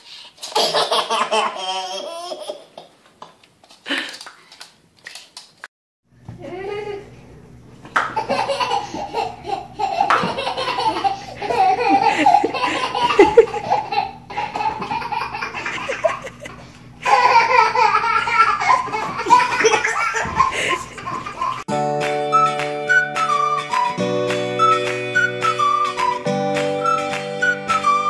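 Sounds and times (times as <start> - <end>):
toddler laughing hysterically: 0.4 - 2.8, 8.1 - 21.7.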